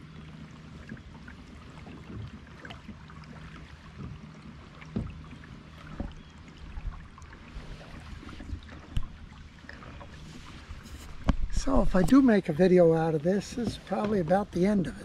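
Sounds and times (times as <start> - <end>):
water gurgling along kayak hull: 0.0 - 15.0
small splashy ticks: 0.8 - 7.5, 8.4 - 10.1, 13.4 - 14.4
soft low knocks: 3.9 - 14.9.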